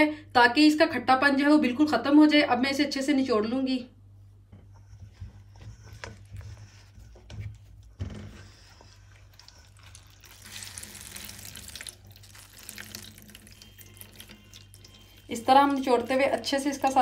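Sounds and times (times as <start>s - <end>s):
low steady hum: 0.0s - 17.0s
water trickling: 9.4s - 17.0s.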